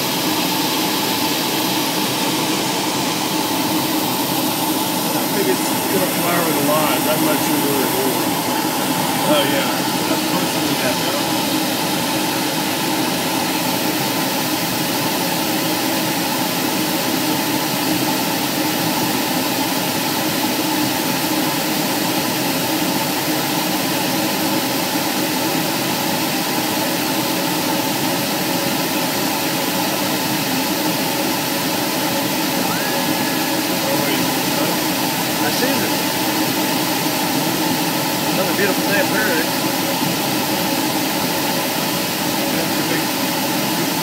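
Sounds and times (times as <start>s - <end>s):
aircraft engine drone: 0.0s - 44.0s.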